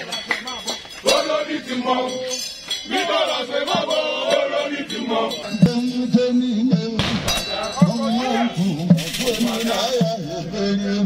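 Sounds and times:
men chanting and singing: 0.0s - 11.0s
sharp clinks: 2.1s - 4.1s, 7.2s - 10.0s.

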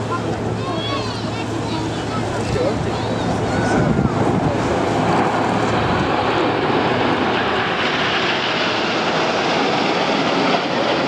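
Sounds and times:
aircraft engine rushing: 0.0s - 11.0s.

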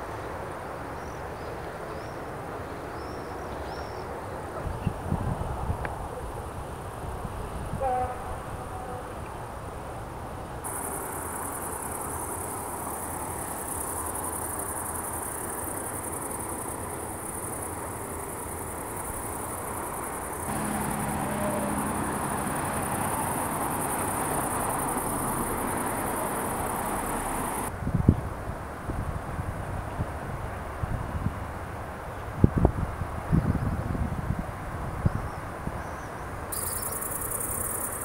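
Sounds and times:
insects chirring in grass: 10.6s - 27.7s, 36.5s - 38.0s.

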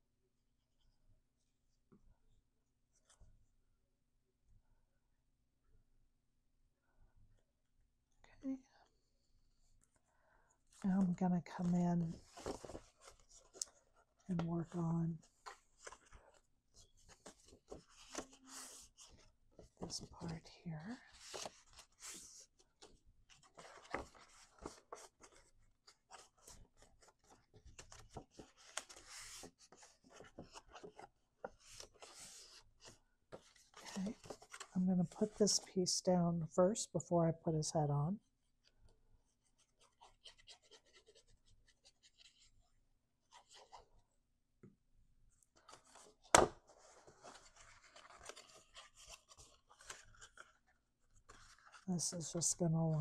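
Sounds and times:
card rustling and scraping: 12.0s - 14.1s, 15.2s - 20.4s, 21.1s - 35.6s, 39.5s - 42.6s, 45.6s - 51.9s.

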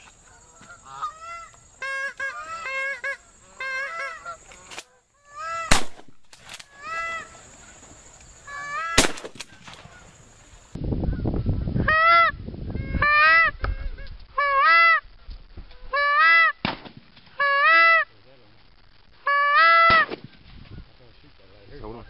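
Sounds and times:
goose honking: 0.3s - 5.7s.

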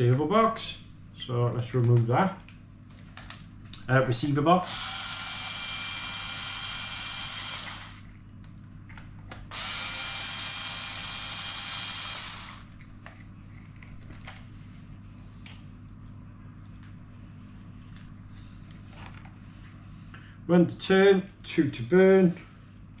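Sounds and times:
electric screwdriver whirring: 4.6s - 8.1s, 9.5s - 12.8s.

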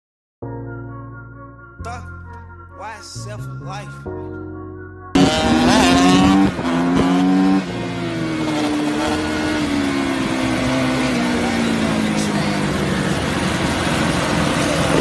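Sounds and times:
dirt bike engine revving: 5.2s - 15.0s.

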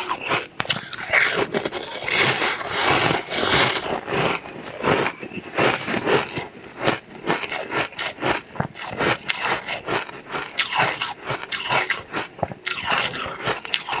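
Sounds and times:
ice being crunched and chewed: 0.0s - 14.0s.

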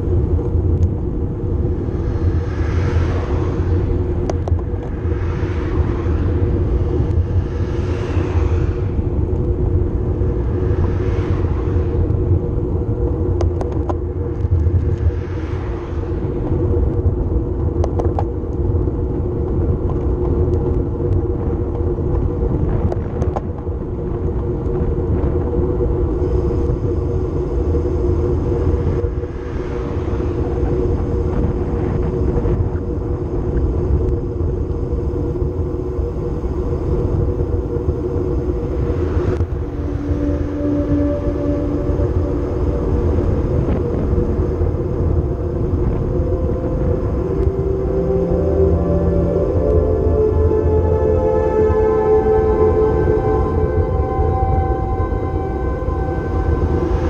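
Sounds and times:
wind rumble over microphone: 0.0s - 57.0s
sharp clicks from road bumps: 17.7s - 18.7s, 19.4s - 24.9s.

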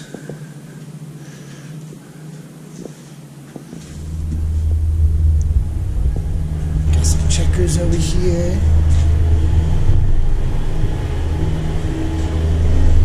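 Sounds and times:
steady quiet hum: 0.0s - 13.0s
construction machinery engine rumble: 3.7s - 13.0s.

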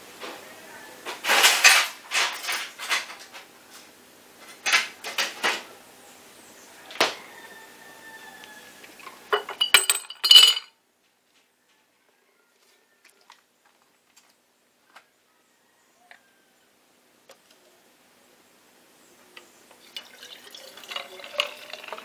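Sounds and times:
utensils clattering: 1.2s - 3.5s, 9.3s - 10.7s
glassware and utensils clinking: 9.3s - 10.7s.

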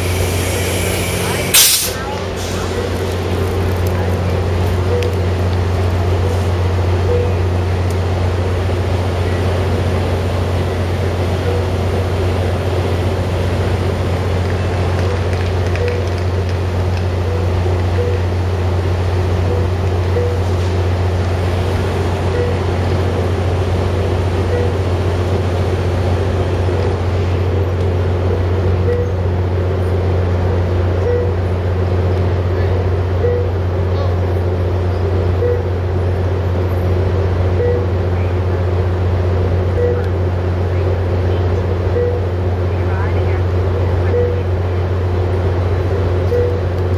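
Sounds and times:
locomotive engine idling: 0.0s - 46.9s
short beeps: 4.8s - 5.2s, 7.0s - 7.4s, 17.2s - 18.2s, 19.4s - 20.4s, 22.3s - 22.6s, 24.5s - 24.8s, 28.8s - 29.2s, 31.0s - 31.4s, 33.2s - 33.5s, 35.4s - 35.7s, 37.6s - 37.9s, 39.7s - 40.1s, 41.9s - 42.3s, 44.1s - 44.5s, 46.3s - 46.6s.

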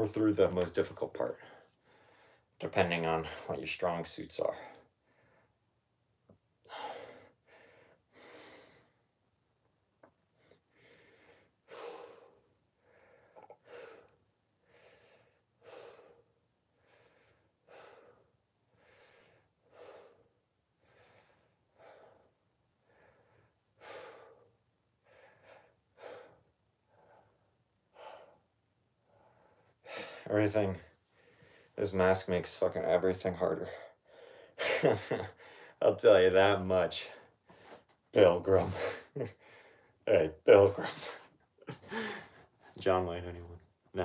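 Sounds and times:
man breathing hard through mask: 41.1s - 42.5s.

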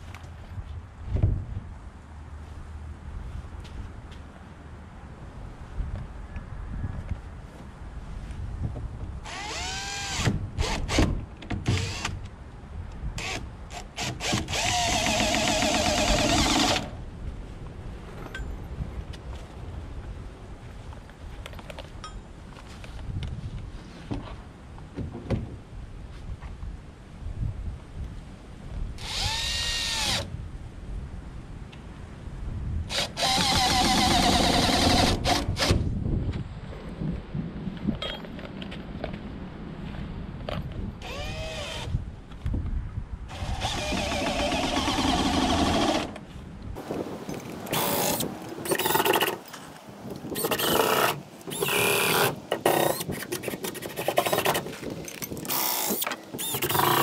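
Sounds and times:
cordless drill whirring: 9.3s - 10.8s, 14.0s - 16.9s, 29.0s - 30.3s, 32.9s - 35.7s, 41.0s - 41.9s, 43.3s - 46.2s, 47.7s - 49.4s, 50.4s - 54.7s, 55.4s - 57.0s.

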